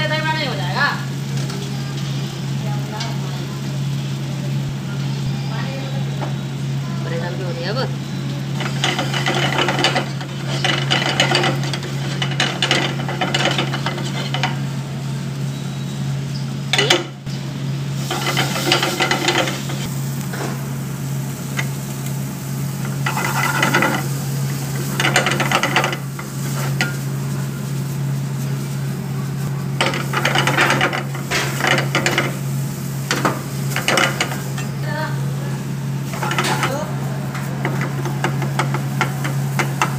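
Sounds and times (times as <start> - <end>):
steady low hum: 0.0 - 39.9
ladle scraping frying pan: 8.6 - 14.7, 18.0 - 19.9, 22.8 - 27.2, 29.8 - 32.4, 36.0 - 39.9.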